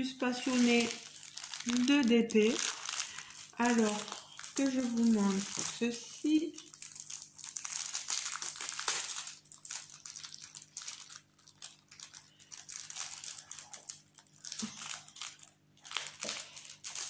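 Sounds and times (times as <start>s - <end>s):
plastic wrapping crinkling: 0.0s - 17.0s.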